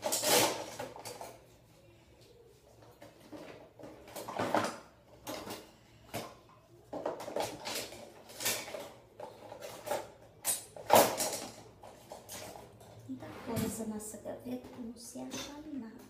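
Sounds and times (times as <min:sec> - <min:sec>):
drawer contents clattering: 0:03.0 - 0:06.3, 0:06.9 - 0:13.9.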